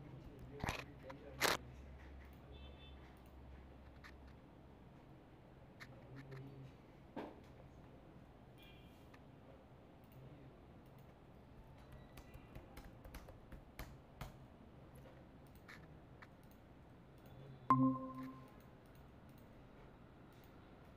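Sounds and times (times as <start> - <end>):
computer clicks: 17.2 - 19.5
short electronic chime: 17.7 - 18.5.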